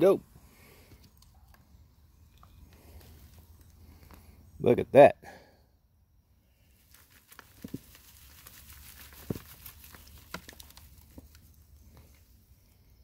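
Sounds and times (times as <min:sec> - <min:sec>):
hands digging through soil: 0:06.6 - 0:13.0.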